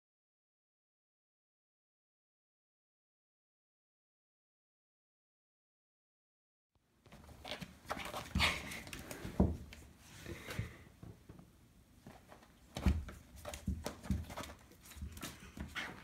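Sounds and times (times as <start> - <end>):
kitten thumping and scrabbling: 12.1 - 16.0.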